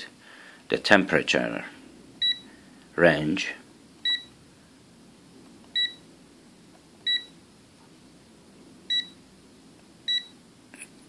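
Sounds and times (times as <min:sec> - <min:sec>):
multimeter beeping: 0:02.2 - 0:02.5, 0:04.0 - 0:04.4, 0:05.8 - 0:06.0, 0:07.0 - 0:07.4, 0:08.9 - 0:09.2, 0:10.1 - 0:10.4.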